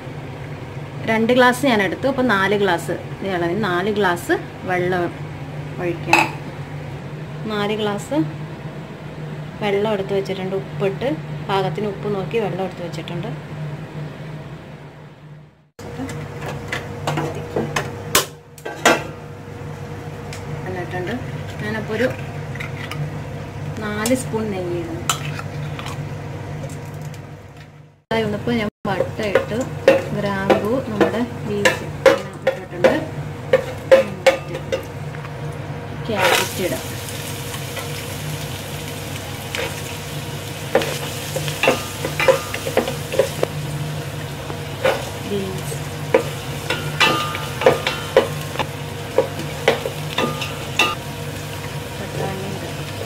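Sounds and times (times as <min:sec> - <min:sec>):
steady low hum: 0:00.0 - 0:53.0
spices sizzling in hot oil: 0:29.0 - 0:53.0.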